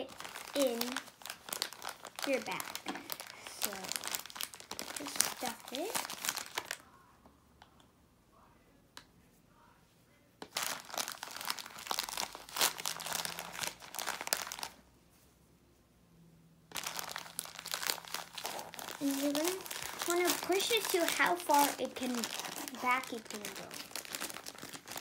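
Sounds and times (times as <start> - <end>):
plastic bag crinkling: 0.0 - 6.8, 10.5 - 14.8, 16.7 - 25.0.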